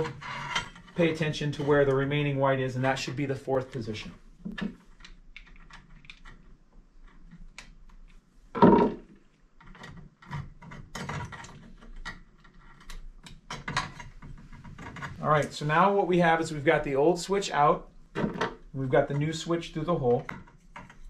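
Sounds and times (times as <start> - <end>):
small clicks and wire rustling: 4.4 - 8.3, 9.2 - 15.6.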